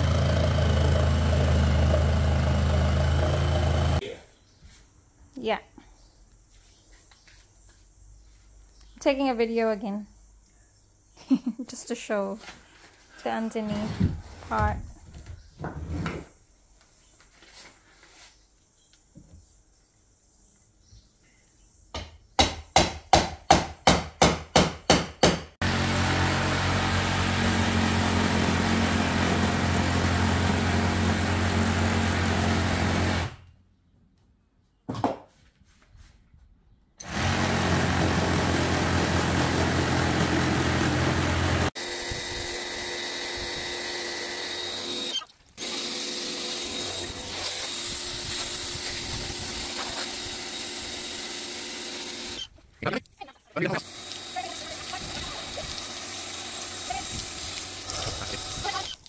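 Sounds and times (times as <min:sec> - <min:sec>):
reciprocating saw cutting wood: 0:00.0 - 0:04.0, 0:25.6 - 0:33.4, 0:37.0 - 0:52.5, 0:53.7 - 0:59.0.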